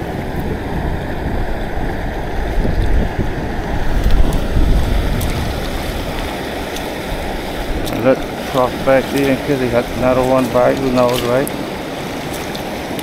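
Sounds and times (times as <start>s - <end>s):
stream water rushing: 0.0s - 13.0s
wind buffeting microphone: 0.0s - 13.0s.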